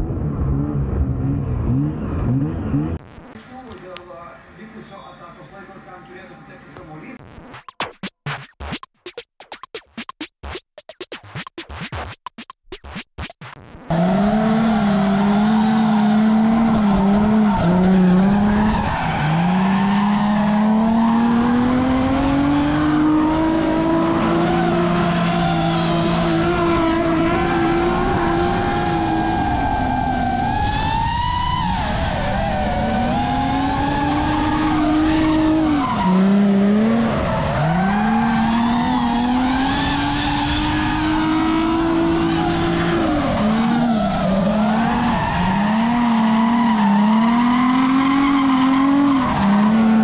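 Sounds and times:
car engine at high revs: 0.0 - 3.4, 13.6 - 50.0.

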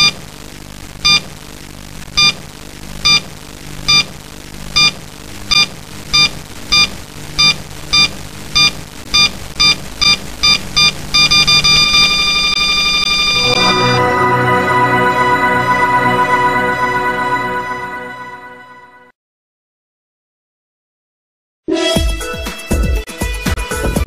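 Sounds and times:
high electronic beeps: 5.6 - 18.5
low electronic drone: 13.1 - 19.0.

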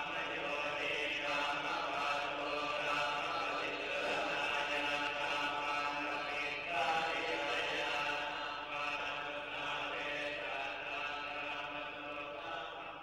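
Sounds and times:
group chanting in unison: 0.0 - 13.0.

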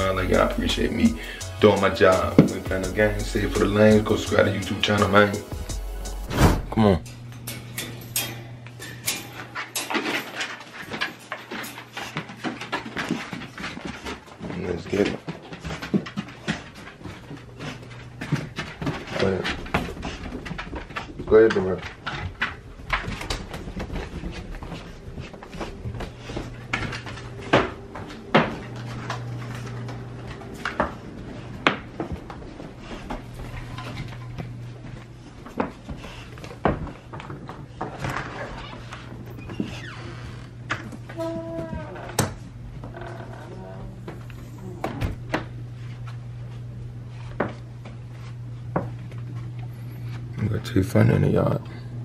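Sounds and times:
footsteps on carpeted stairs: 0.0 - 6.7, 10.5 - 50.4
steady low hum: 11.0 - 52.0.

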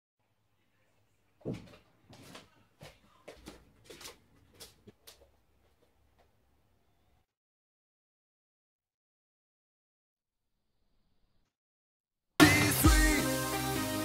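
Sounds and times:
footsteps on a hard floor: 1.4 - 6.3.

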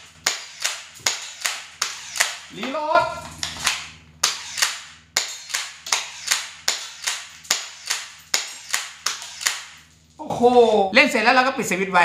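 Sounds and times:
toy pistol firing clacks: 0.2 - 2.6, 3.5 - 9.8.

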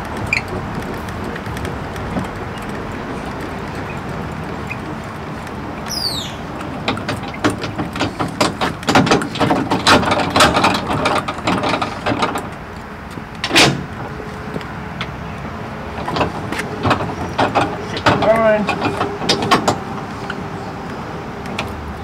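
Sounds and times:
metal trailer hitch clanking: 0.0 - 14.2, 15.9 - 20.7.

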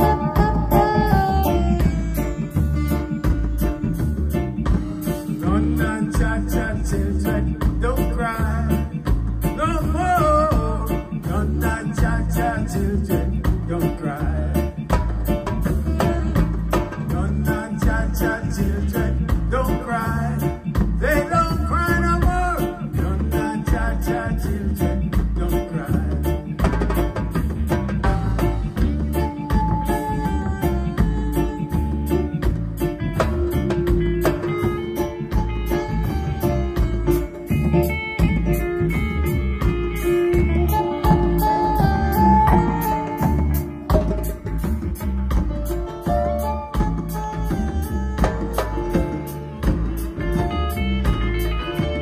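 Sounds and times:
person singing: 0.0 - 26.8, 28.0 - 32.5, 33.2 - 45.0
hand drums and bass drum: 0.0 - 52.0
lead guitar line: 0.0 - 52.0
reggae band playing: 0.0 - 52.0.

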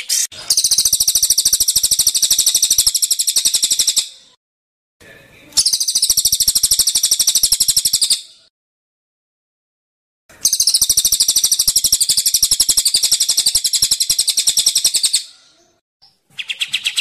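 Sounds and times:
songbird trilling: 0.0 - 4.2, 5.6 - 8.3, 10.4 - 15.4, 16.0 - 17.0.

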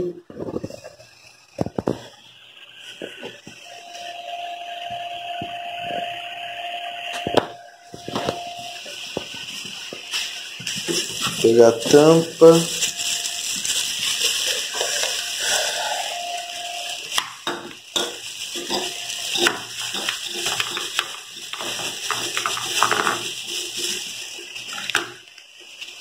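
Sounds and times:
plastic packaging crinkling: 7.8 - 26.0.

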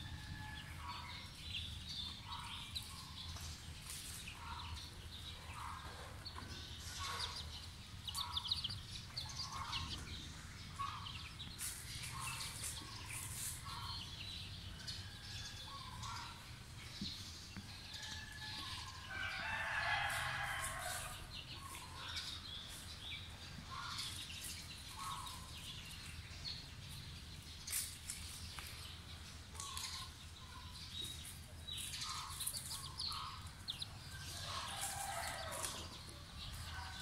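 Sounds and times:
chickens clucking: 0.7 - 14.2, 27.7 - 37.0
rooster crowing: 18.0 - 21.3.

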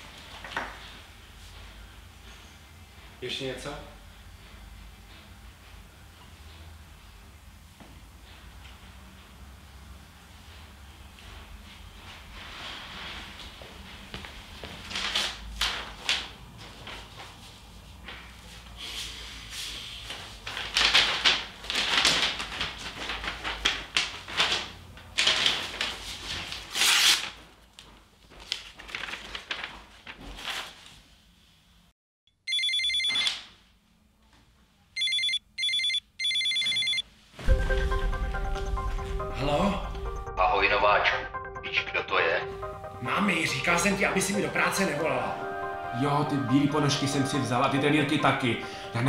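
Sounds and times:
packaging rustling: 20.4 - 30.9
smartphone ringtone trilling: 32.5 - 33.3, 35.0 - 37.0.

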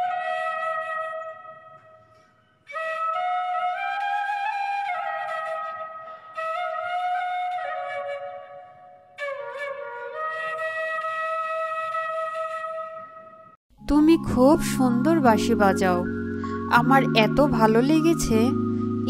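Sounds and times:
bamboo flute melody: 0.0 - 13.6, 14.2 - 19.0.

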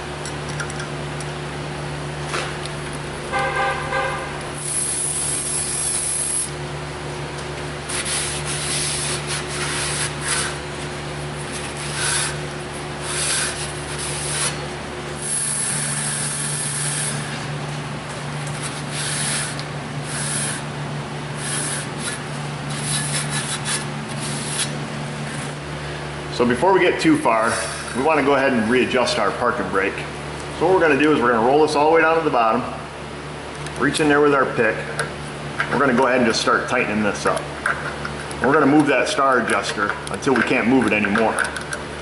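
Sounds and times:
rag rubbing metal rotor: 4.6 - 6.6, 7.9 - 10.7, 11.4 - 17.5, 18.5 - 20.7, 21.3 - 25.5
screwdriver whirring: 4.6 - 6.6, 11.4 - 14.6, 15.2 - 17.4, 18.4 - 20.7, 21.4 - 24.8.

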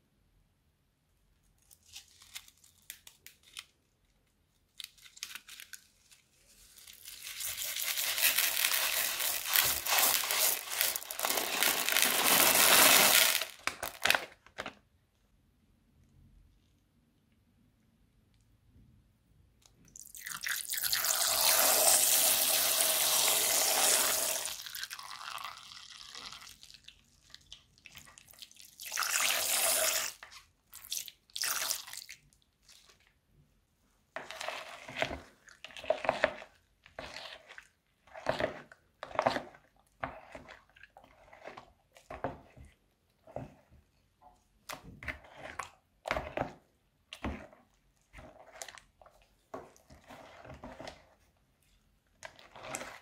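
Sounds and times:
spatula stirring squelching slime: 1.4 - 14.2, 15.4 - 53.0
liquid pouring into a bowl: 20.0 - 30.2.

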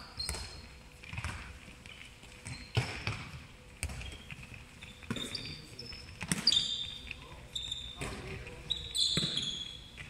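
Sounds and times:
sports shoes squeaking: 0.0 - 10.0
handballs thudding: 0.3 - 5.4.

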